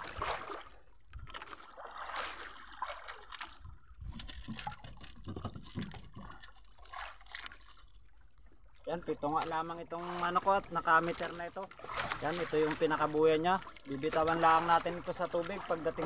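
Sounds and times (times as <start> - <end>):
water sloshing against boat hull: 0.0 - 16.0
small knocks: 4.0 - 6.6.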